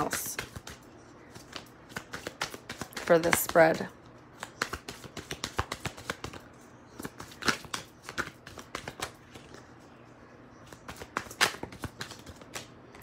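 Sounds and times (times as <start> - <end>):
cards being shuffled: 0.3 - 3.4, 4.4 - 6.4, 7.0 - 9.6, 10.7 - 13.0.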